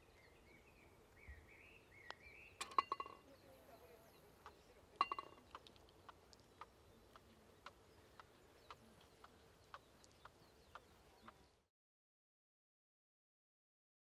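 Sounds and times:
golf ball clinking against cup: 2.6s - 3.3s, 5.0s - 5.5s
faint evenly spaced ticks: 4.2s - 11.6s.

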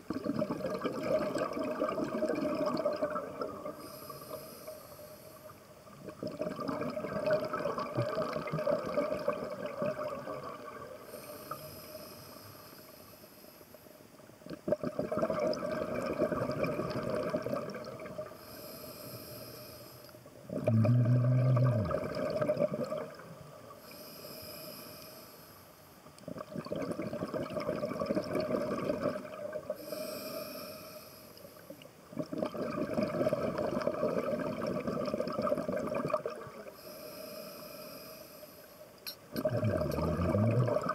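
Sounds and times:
exhaled bubbles rushing: 0.1s - 3.8s, 6.0s - 11.0s, 14.6s - 18.3s, 20.5s - 23.5s, 26.4s - 29.8s, 32.1s - 36.7s, 39.3s - 40.9s
regulator inhale hiss: 3.8s - 5.7s, 11.0s - 14.0s, 18.4s - 20.2s, 23.7s - 25.8s, 29.7s - 31.8s, 36.7s - 38.9s.

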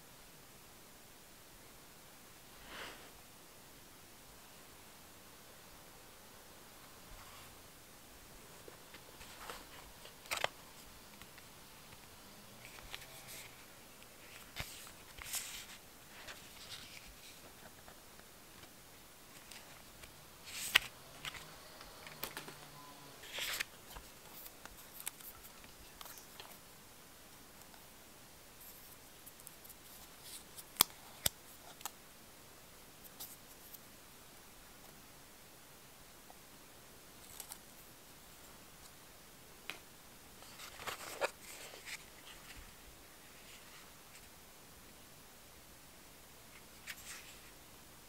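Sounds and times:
paper and cardboard rustling: 8.7s - 11.5s, 12.7s - 18.0s, 23.2s - 26.6s, 40.4s - 42.7s.

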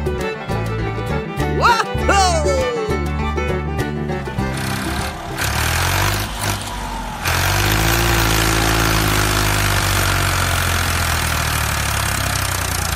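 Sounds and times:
tractor engine running: 3.0s - 12.9s.

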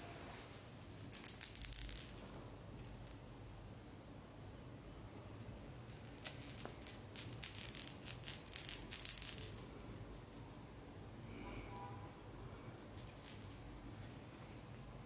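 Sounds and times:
plastic toy ball rattling: 0.5s - 3.2s, 5.5s - 9.8s, 13.0s - 13.6s.

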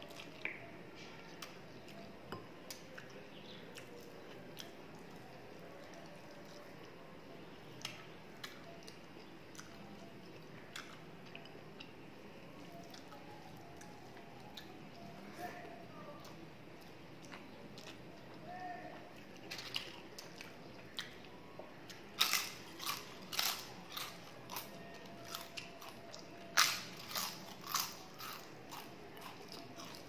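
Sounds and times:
person chewing: 7.8s - 11.9s, 16.2s - 18.4s, 21.9s - 30.0s.

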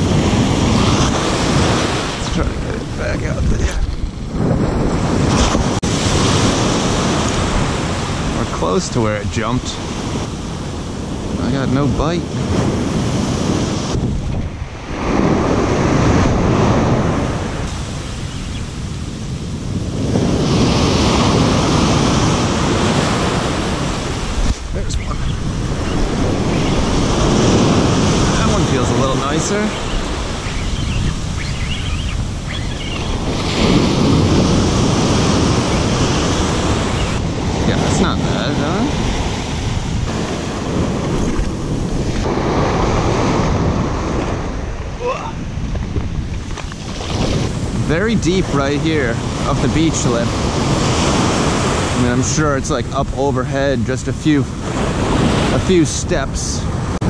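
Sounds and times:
ocean waves breaking: 0.0s - 57.0s
wind buffeting microphone: 0.0s - 57.0s.

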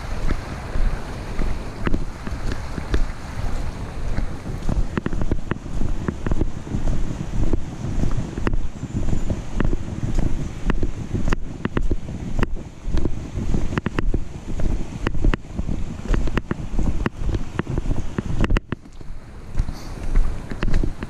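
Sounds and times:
footsteps on dirt trail: 0.0s - 21.0s
camera handling rumble: 4.6s - 6.4s.

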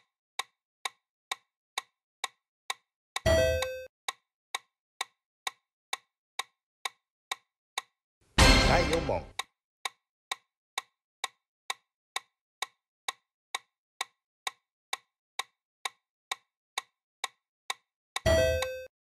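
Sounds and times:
countdown timer ticking: 8.4s - 9.5s.

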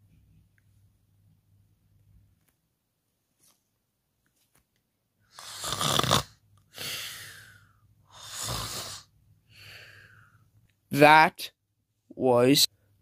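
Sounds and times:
person mock snoring: 5.3s - 7.5s, 8.1s - 9.1s.

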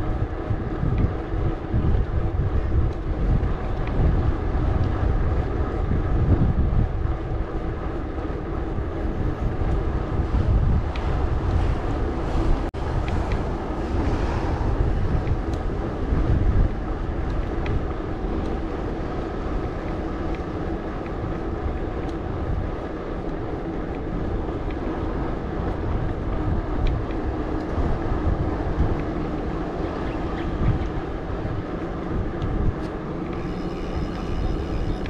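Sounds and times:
bike tyres rumbling on path: 0.0s - 35.0s
wind buffeting microphone: 0.0s - 35.0s
bike clicks and rattles: 0.1s - 12.0s.

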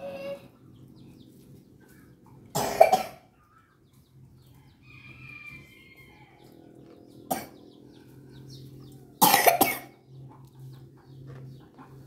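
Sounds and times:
woman coughing: 2.6s - 3.3s, 9.2s - 9.9s.

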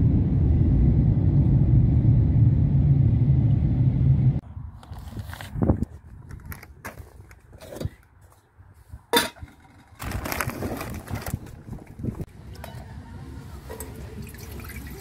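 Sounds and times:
plastic bag rustling: 10.0s - 12.1s.

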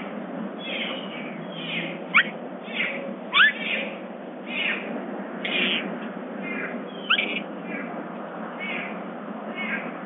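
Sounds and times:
bobcat chattering chirps: 7.0s - 7.4s.

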